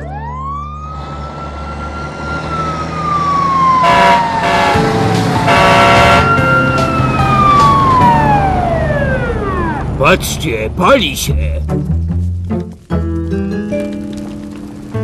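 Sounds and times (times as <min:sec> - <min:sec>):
fire engine siren wailing: 0:00.0 - 0:10.0.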